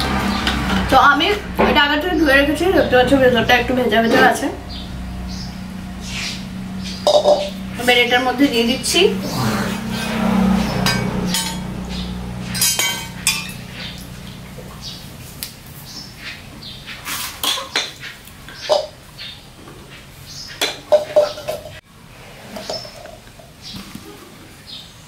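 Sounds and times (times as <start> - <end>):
kitchenware knocks and clinks: 7.1 - 7.5, 12.6 - 13.6, 20.6 - 21.8.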